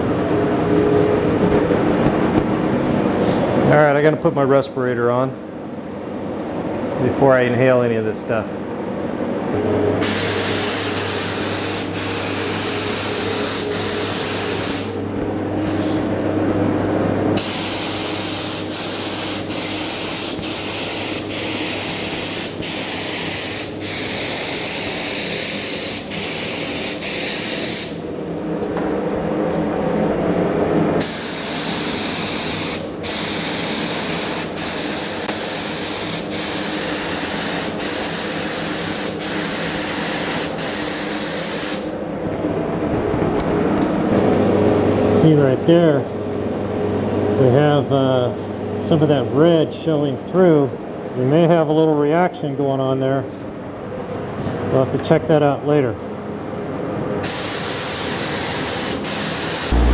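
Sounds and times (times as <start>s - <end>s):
spray gun hissing: 10.0s - 15.0s, 17.4s - 28.0s, 31.0s - 41.9s, 57.2s - 59.9s.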